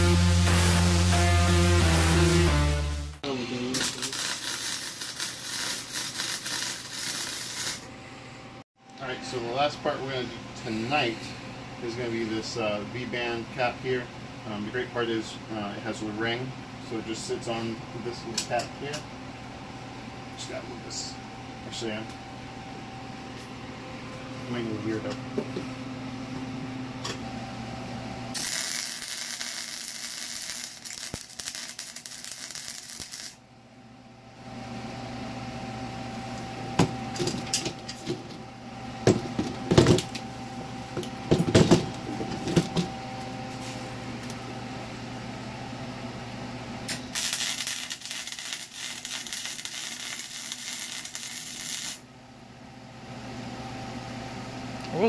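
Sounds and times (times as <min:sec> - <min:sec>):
welder crackling: 0:03.5 - 0:07.9, 0:28.4 - 0:33.4, 0:46.9 - 0:52.0.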